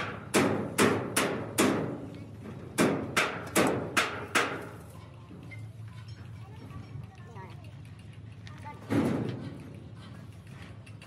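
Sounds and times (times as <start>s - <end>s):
hammer striking metal: 0.0s - 2.0s, 2.8s - 4.8s.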